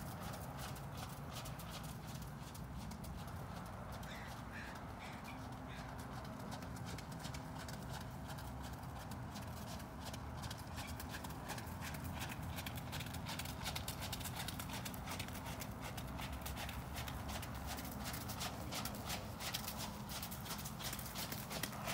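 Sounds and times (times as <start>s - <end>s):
horse hoofbeats on wet ground: 0.0s - 21.9s.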